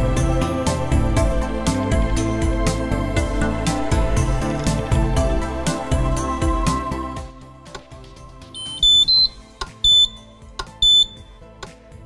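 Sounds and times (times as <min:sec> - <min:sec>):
electronic beeps: 0:08.6 - 0:11.4.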